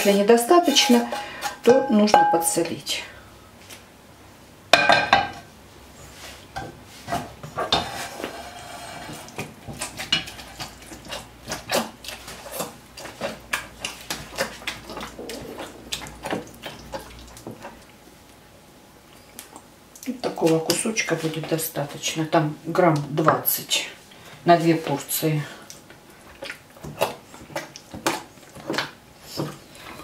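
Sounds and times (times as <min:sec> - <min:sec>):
wet squishing of masher: 0:09.1 - 0:18.4, 0:24.7 - 0:29.8.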